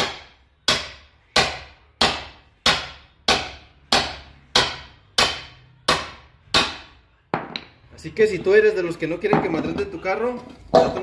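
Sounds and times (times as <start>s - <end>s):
hammer striking steel: 0.0s - 7.7s.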